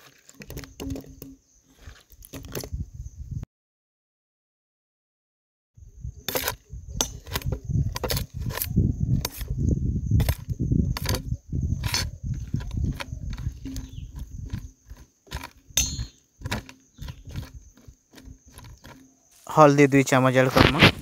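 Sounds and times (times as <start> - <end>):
spatula scraping frying food: 10.2 - 15.8, 16.4 - 19.4.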